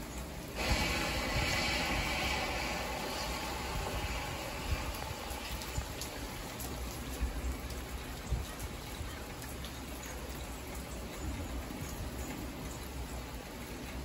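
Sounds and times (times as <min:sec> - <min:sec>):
rain on car windshield and roof: 0:00.0 - 0:14.0
low rumble: 0:00.5 - 0:07.6.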